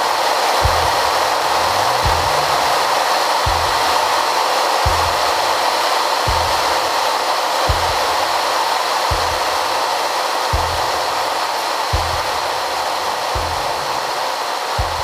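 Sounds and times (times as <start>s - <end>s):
deep low thump: 0.6s - 2.7s, 3.5s - 4.0s, 4.9s - 5.3s, 6.3s - 6.7s, 7.7s - 8.2s, 9.1s - 9.5s, 10.6s - 11.0s, 12.0s - 12.4s
aircraft cockpit rushing noise: 0.6s - 7.0s.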